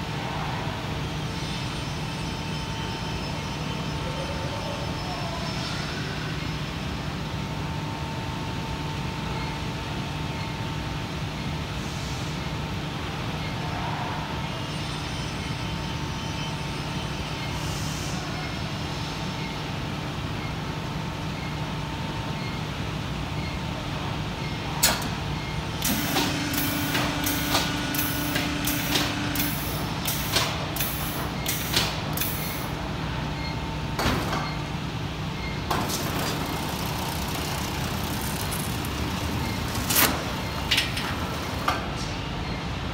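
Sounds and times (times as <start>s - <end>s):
press machine humming: 25.0s - 32.9s, 35.6s - 42.0s.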